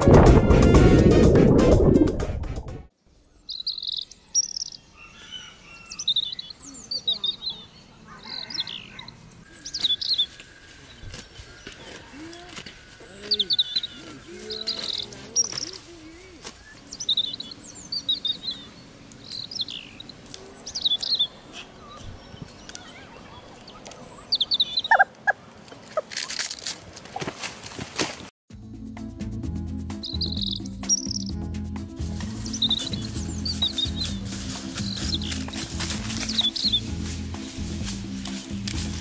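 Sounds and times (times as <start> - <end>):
birds chirping: 3.0 - 26.2, 29.9 - 31.4, 32.2 - 39.0
rustling: 32.0 - 39.0.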